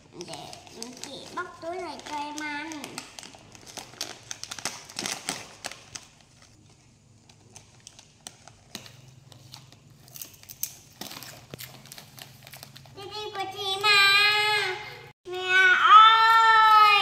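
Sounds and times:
plastic bags crinkling: 0:00.2 - 0:13.1.

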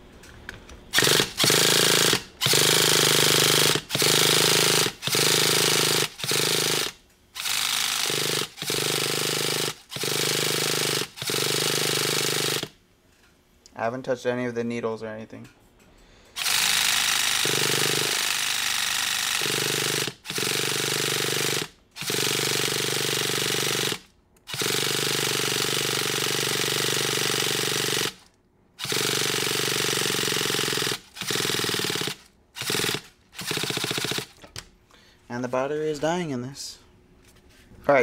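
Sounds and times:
electric starter cranking engine: 0:00.9 - 0:12.7, 0:16.4 - 0:28.2, 0:28.8 - 0:34.6.

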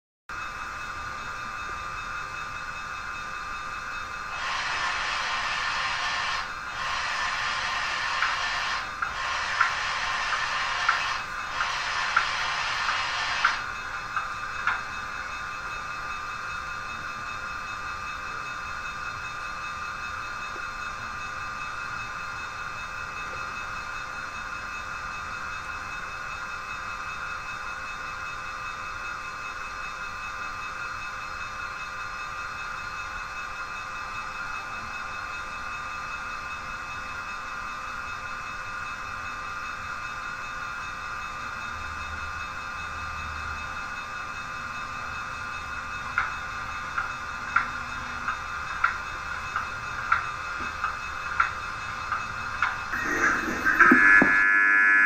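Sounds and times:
model trains whining: 0:00.3 - 0:55.0.

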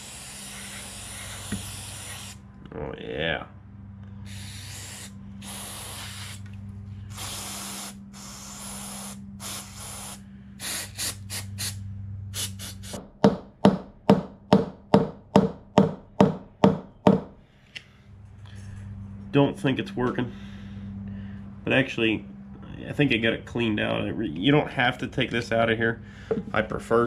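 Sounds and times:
aerosol spray hissing: 0:00.0 - 0:02.4, 0:04.3 - 0:06.5, 0:07.1 - 0:11.8, 0:12.4 - 0:13.0
hammer tapping on screwdriver: 0:26.3 - 0:26.5.

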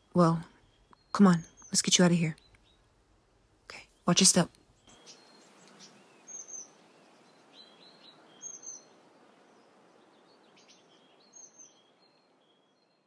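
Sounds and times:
small birds chirping: 0:00.0 - 0:13.0
steady soft hiss: 0:02.3 - 0:13.0.

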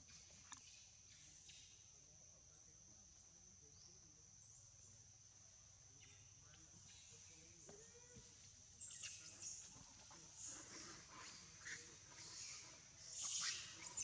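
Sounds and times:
high insect drone: 0:00.0 - 0:14.0.

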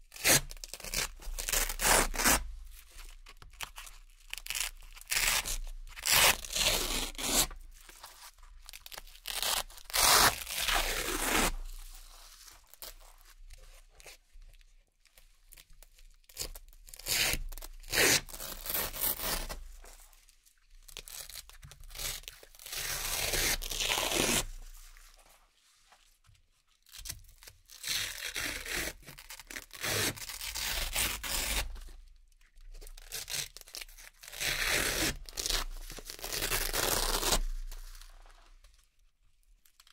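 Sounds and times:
velcro ripping: 0:00.1 - 0:02.4, 0:04.3 - 0:07.6, 0:08.8 - 0:11.8, 0:16.3 - 0:19.7, 0:21.0 - 0:24.6, 0:27.7 - 0:31.9, 0:33.0 - 0:38.1.

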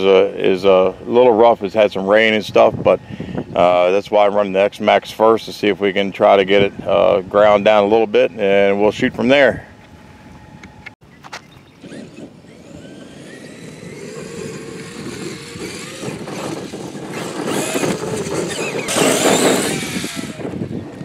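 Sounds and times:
electric toy truck motor whining: 0:11.8 - 0:21.0.

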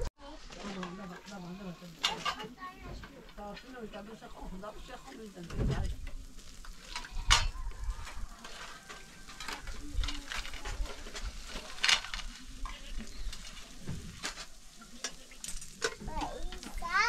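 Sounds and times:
steady hiss: 0:01.0 - 0:17.0
knocks and scrapes: 0:04.5 - 0:17.0.

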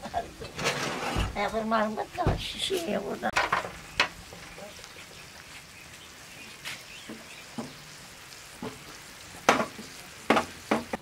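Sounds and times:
faint sizzle: 0:00.0 - 0:11.0
metal spoon scraping a pan: 0:00.5 - 0:01.3.

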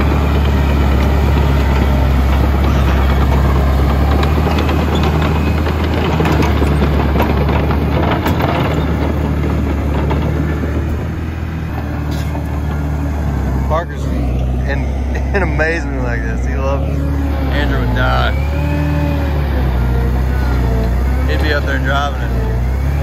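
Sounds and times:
diesel engine humming: 0:00.0 - 0:23.0.

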